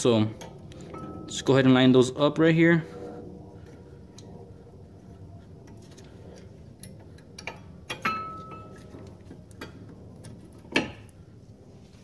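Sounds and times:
small metallic clicks and scrapes: 5.6 - 8.1.

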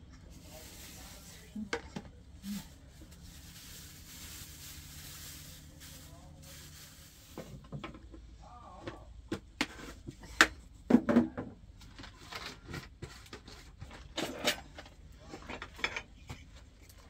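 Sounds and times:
kitchenware knocking and clattering: 10.4 - 11.5.

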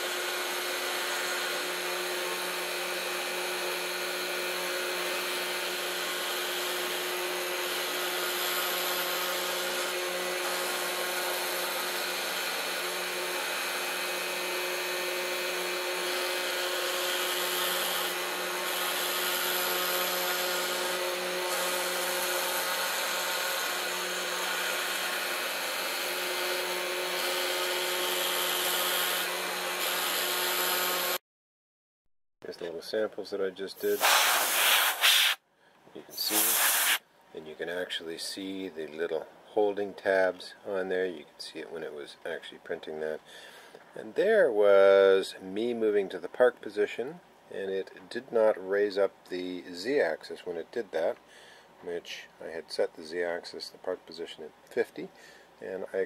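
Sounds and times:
router spindle whine: 0.0 - 31.2
bit cutting wood hiss: 33.8 - 35.4, 36.1 - 37.0.

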